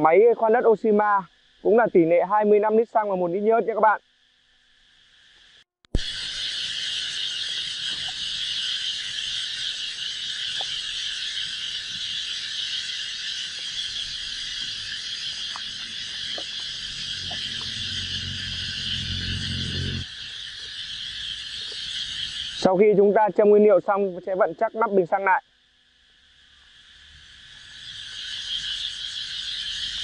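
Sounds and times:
insects droning: 0.0 - 30.0
low rumble: 15.6 - 20.1.

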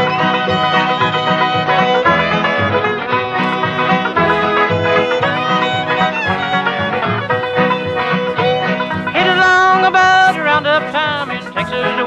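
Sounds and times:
bluegrass tune with banjo and fiddle: 0.0 - 12.0.

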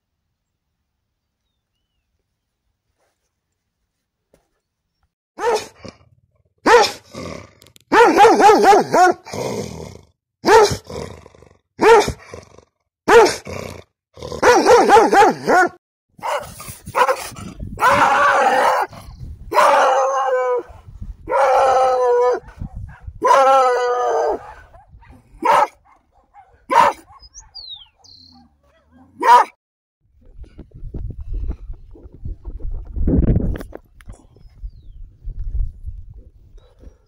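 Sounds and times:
dogs barking: 5.4 - 5.8, 6.6 - 7.0, 7.9 - 9.3, 10.4 - 10.8, 11.8 - 12.2, 13.1 - 13.4, 14.4 - 29.6
dogs howling: 17.8 - 22.6, 23.2 - 24.8.

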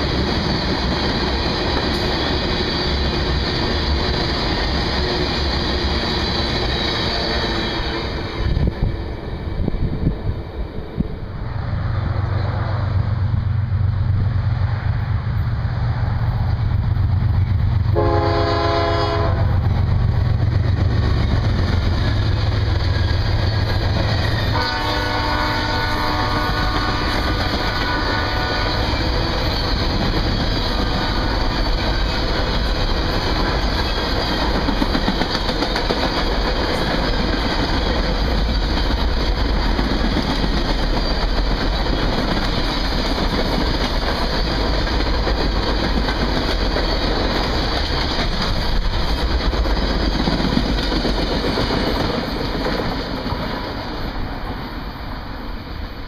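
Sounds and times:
diesel locomotive rumble: 0.0 - 56.0
train horn blast: 17.9 - 19.6, 24.5 - 29.0
fainter train horn: 17.9 - 19.7, 24.3 - 29.2.

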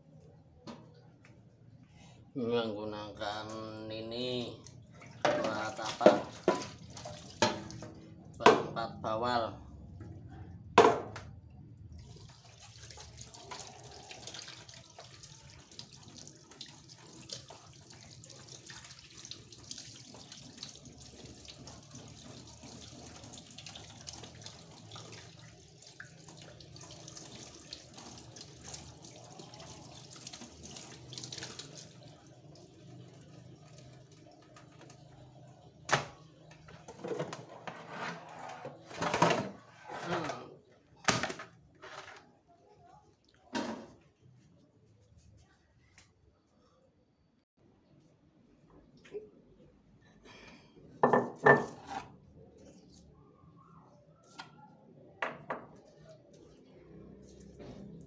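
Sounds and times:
tap water running into sink: 5.2 - 8.0, 12.0 - 37.4.

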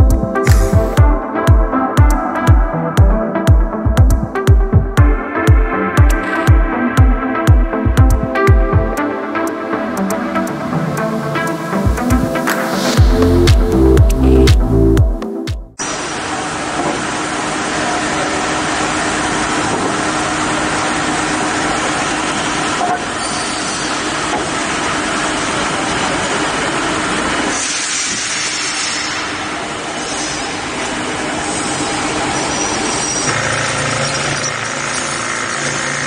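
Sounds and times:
woodworking machine hissing: 15.8 - 36.0.

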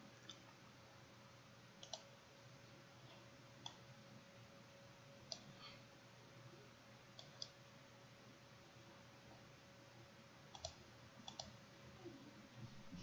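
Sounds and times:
faint steady hum: 0.0 - 13.0
computer mouse clicks: 1.8 - 2.1, 5.3 - 5.5, 7.2 - 7.6, 10.5 - 11.6.

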